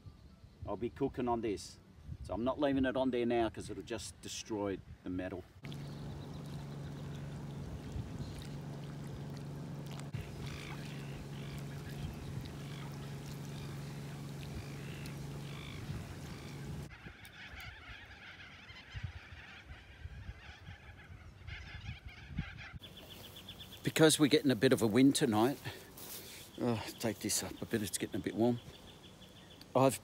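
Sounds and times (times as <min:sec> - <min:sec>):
steady low hum: 0:05.6 - 0:16.9
flock of birds calling: 0:05.7 - 0:24.3.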